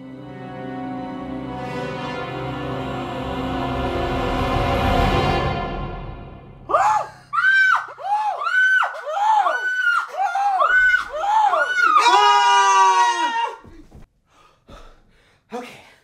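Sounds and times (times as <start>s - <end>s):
men screaming in fright: 6.7s - 13.7s.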